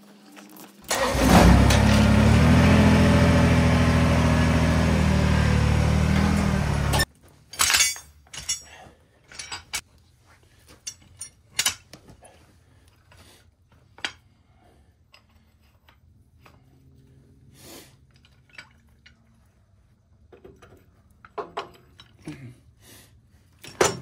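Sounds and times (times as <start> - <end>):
engine running loudly: 0.9 - 7.0.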